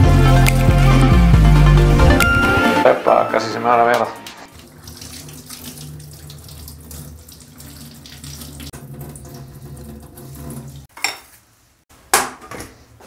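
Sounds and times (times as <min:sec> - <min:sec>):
tap water splashing into sink: 0:03.9 - 0:10.8.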